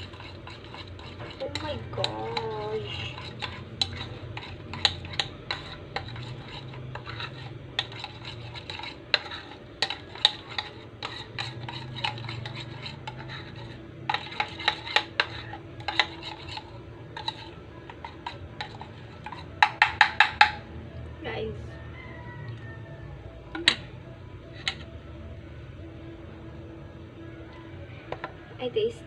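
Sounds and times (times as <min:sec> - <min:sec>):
utensil clinking against dish: 0:00.0 - 0:20.6, 0:23.5 - 0:24.0, 0:24.6 - 0:24.9.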